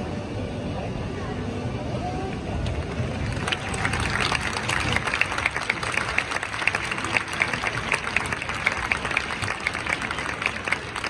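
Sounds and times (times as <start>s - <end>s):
crowd clapping: 2.6s - 11.0s.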